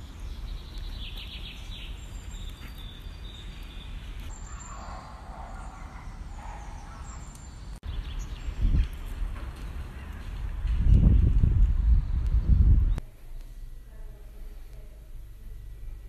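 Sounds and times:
wind rumble on microphone: 7.9 - 13.0.

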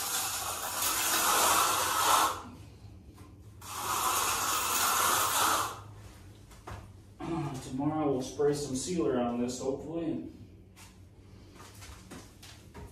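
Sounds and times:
trowel scraping wet concrete: 3.6 - 5.8.

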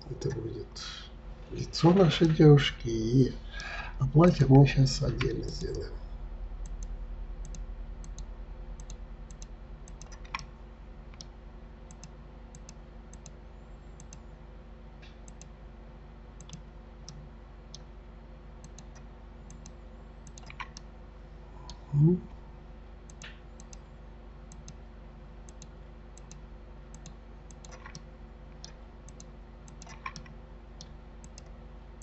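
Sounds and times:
steady low hum: 0.0 - 32.0
computer mouse clicking: 6.6 - 10.5, 11.1 - 11.3, 11.9 - 13.4, 14.0 - 14.3, 15.0 - 15.6, 16.4 - 17.9, 18.6 - 20.9, 23.1 - 23.8, 24.5 - 24.8, 25.5 - 31.6.

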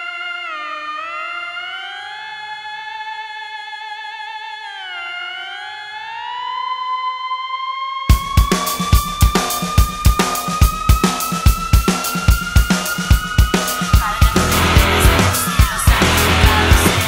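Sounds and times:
drums and band: 8.1 - 17.0.

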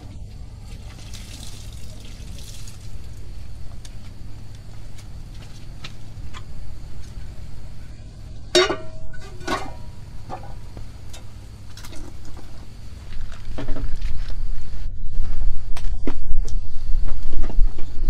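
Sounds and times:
metal cookware clanking: 8.5 - 12.5.

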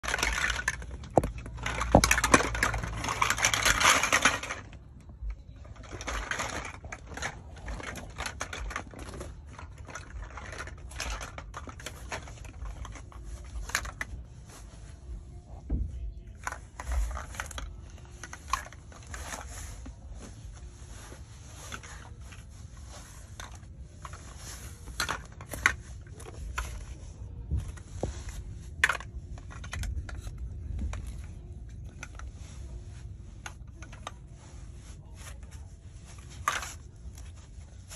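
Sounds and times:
plastic blocks clicking: 0.0 - 4.9
plastic blocks clattering out: 0.0 - 5.1, 5.7 - 14.2, 16.3 - 20.5, 21.2 - 34.4, 35.2 - 37.9.

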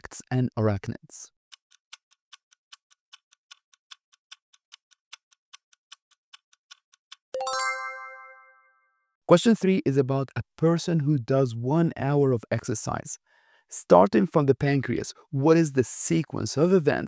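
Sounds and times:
stopwatch ticking: 1.5 - 7.3
bell-like chime: 7.4 - 9.0.

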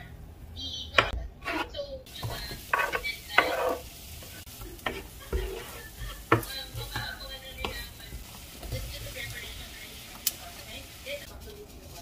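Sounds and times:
onion scraped off cutting board: 1.4 - 3.9
onion sizzling in frying pan: 1.5 - 12.0
spatula knocking against pan: 4.8 - 8.9.

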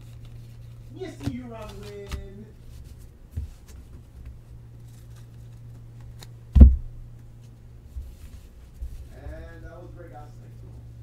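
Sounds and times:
cards rustling: 0.0 - 6.4
steady low hum: 0.0 - 11.0
dull thump: 6.5 - 7.0.

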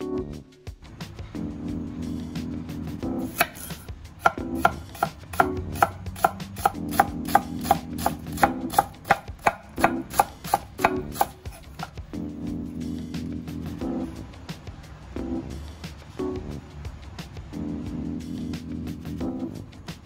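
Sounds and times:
knife chopping on cutting board: 3.3 - 12.0.

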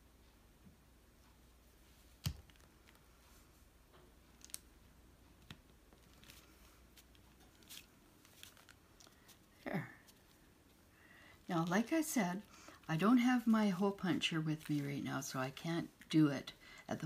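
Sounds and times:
paper rustling: 5.4 - 10.8.

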